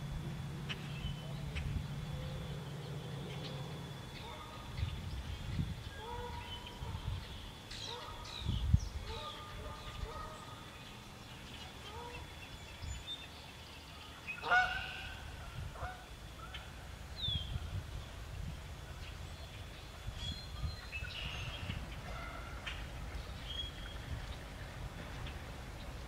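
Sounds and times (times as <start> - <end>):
low rumble: 0.0 - 6.0
geese honking: 14.4 - 16.6.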